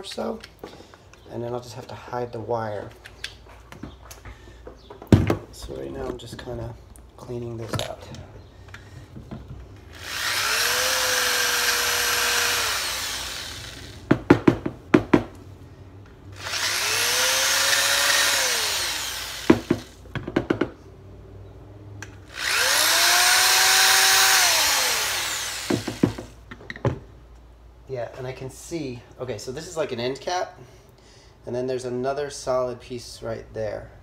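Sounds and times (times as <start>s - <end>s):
electric drill whining: 9.8s - 14.1s, 16.4s - 20.0s, 22.2s - 26.4s
sharp knocks and rattles: 14.0s - 15.4s, 19.4s - 20.8s, 25.6s - 27.1s.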